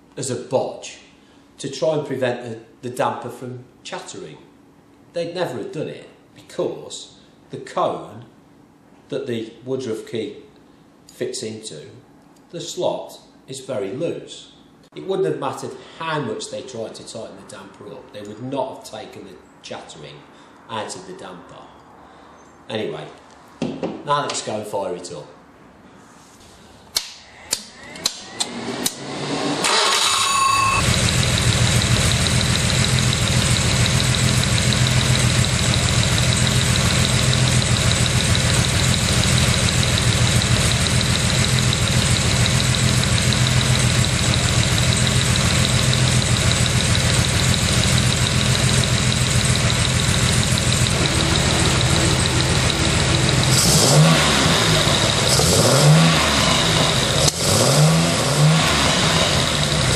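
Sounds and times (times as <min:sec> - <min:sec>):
car engine cranking and idling: 0:28.0 - 0:59.9.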